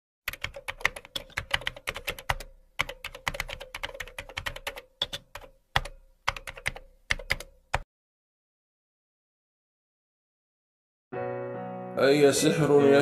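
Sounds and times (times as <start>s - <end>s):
keyboard typing clicks: 0.3s - 7.9s.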